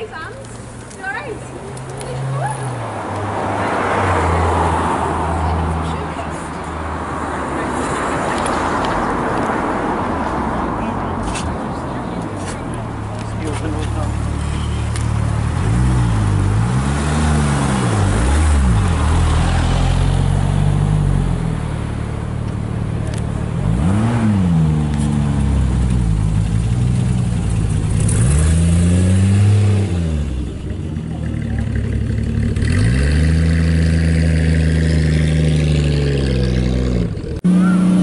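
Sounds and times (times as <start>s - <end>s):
car engine revving: 13.2s - 38.0s.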